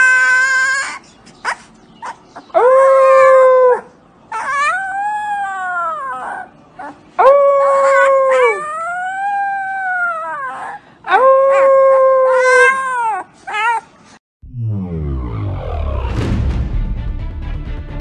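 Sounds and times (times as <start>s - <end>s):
puppy howling: 0.0s - 1.0s, 2.0s - 13.9s
puppy yip: 0.0s - 7.0s
music: 15.0s - 18.0s.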